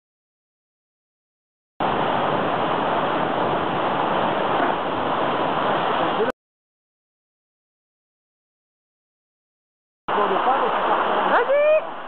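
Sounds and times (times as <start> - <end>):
waterfall pouring into pool: 10.1 - 11.9.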